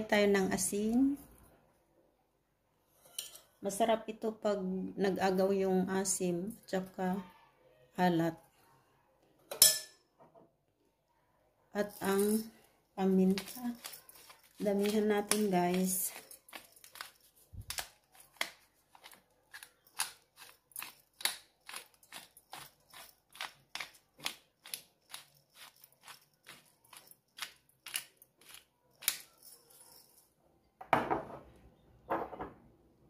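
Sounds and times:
pepper mill grinding: 0:11.8 - 0:30.2.

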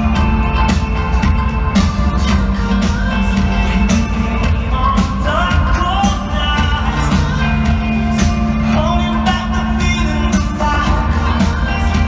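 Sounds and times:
live rock band playing: 0:00.0 - 0:12.0
man singing: 0:02.7 - 0:12.0.

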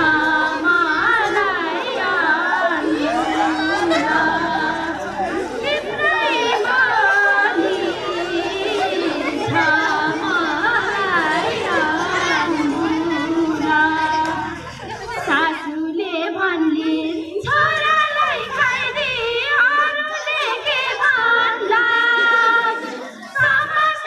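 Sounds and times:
women wailing in mourning: 0:00.0 - 0:15.1.

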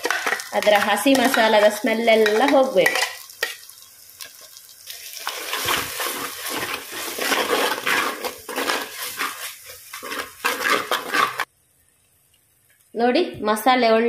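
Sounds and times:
spoon scraping clay pot: 0:00.0 - 0:03.6, 0:05.2 - 0:11.5
paste sizzling in hot oil: 0:00.0 - 0:12.9.

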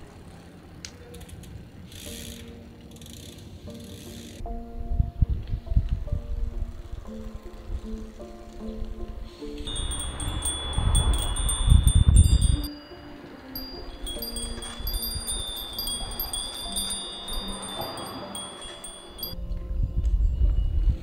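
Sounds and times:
wind rumble on microphone: 0:04.4 - 0:12.8, 0:13.6 - 0:21.0
wind chimes ringing: 0:09.5 - 0:21.0.

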